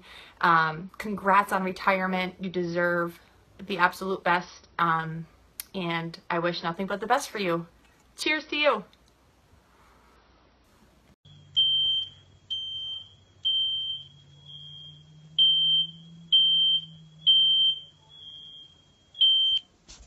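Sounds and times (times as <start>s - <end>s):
smoke alarm beeping: 11.3s - 19.7s.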